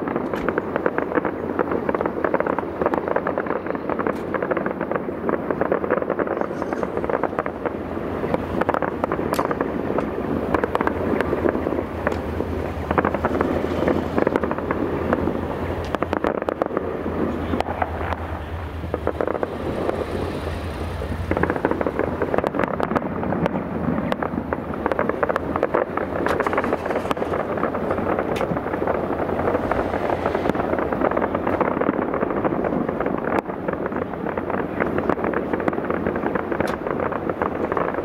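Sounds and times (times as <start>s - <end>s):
fireworks bangs and crackling: 0.0s - 38.0s.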